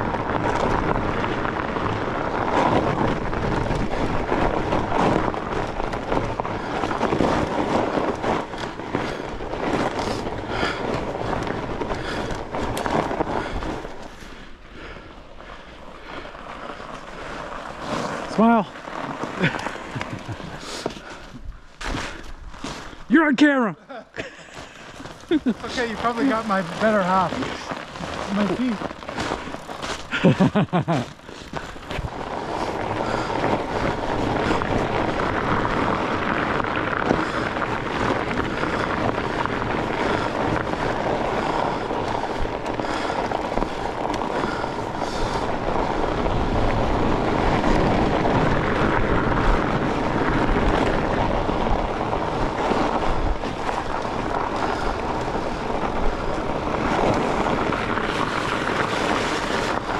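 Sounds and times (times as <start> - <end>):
wind rushing over microphone: 0.0 - 14.6, 24.7 - 59.9
bike rumbling over rutted trail: 0.0 - 59.9.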